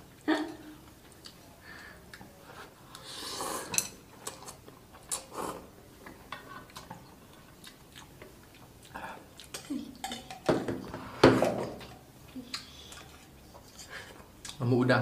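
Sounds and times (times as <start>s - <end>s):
person slurping noodles: 3.0s - 3.7s.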